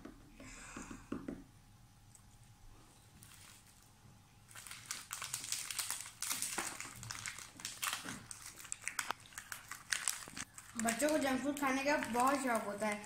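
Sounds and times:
plastic wrappers tearing and crinkling: 3.2s - 13.0s.

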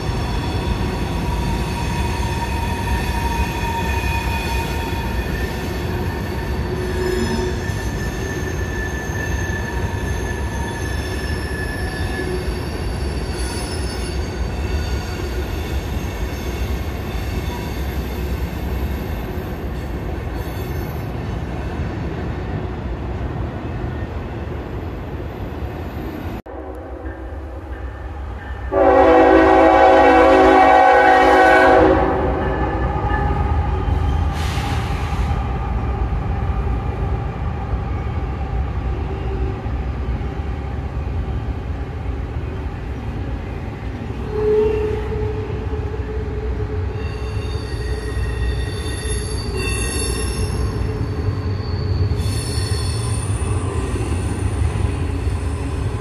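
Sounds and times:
high wheel squeals: 0.0s - 19.5s, 44.2s - 56.0s
train cars rumbling past: 0.0s - 56.0s
locomotive air horn: 28.7s - 32.8s, 44.2s - 46.0s.

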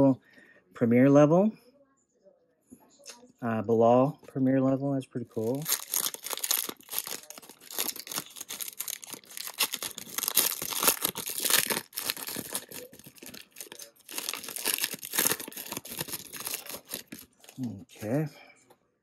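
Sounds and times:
crackling tears of foil: 5.4s - 17.6s
foil wrapper tearing and crinkling: 5.4s - 17.6s.

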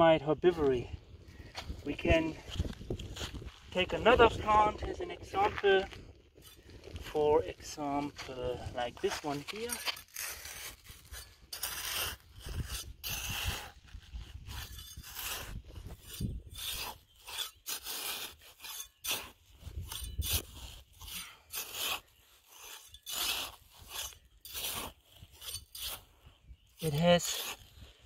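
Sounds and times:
trowel scraping gravelly soil: 0.5s - 28.0s.

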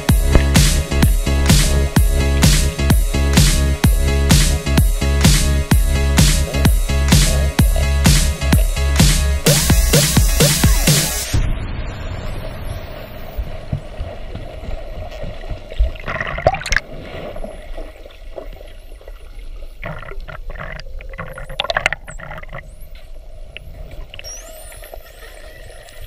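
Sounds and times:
underwater bubbling and gurgling: 6.4s - 8.8s, 11.5s - 26.0s
dolphin whistles underwater: 24.2s - 26.0s.

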